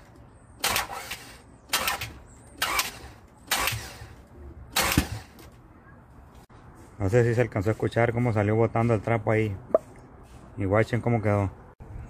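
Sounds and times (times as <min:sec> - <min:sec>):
engine starter cranking: 0:00.6 - 0:05.4.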